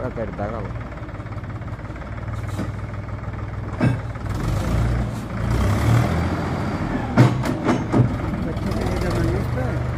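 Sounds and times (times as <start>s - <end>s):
diesel tractor engine under load: 0.0s - 9.9s.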